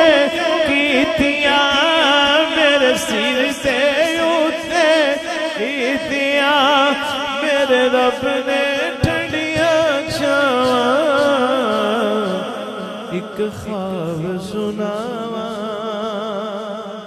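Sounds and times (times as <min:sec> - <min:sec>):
man singing through loudspeakers: 0:00.0 - 0:17.0.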